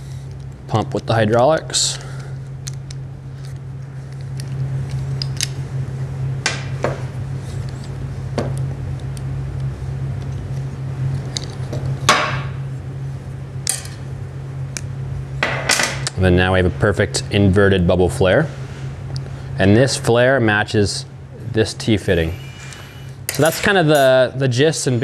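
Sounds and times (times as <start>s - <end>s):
steady low hum: 0.0s - 25.0s
metal tool clicks and clinks: 23.3s - 24.2s.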